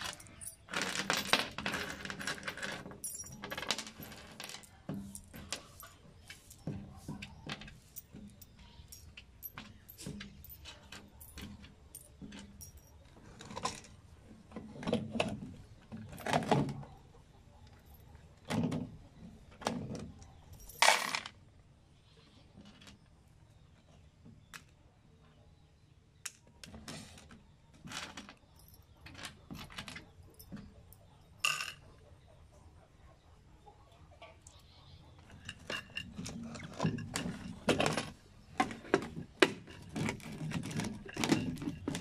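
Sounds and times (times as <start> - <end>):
metal screws clinking: 0.0 - 13.9.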